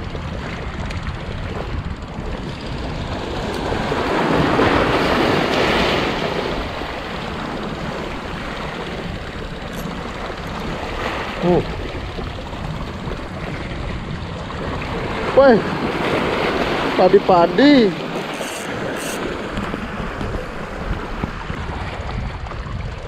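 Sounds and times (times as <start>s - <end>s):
wind rumble on microphone: 0.0s - 23.0s
waves splashing on rocks: 3.2s - 13.7s, 14.5s - 22.4s.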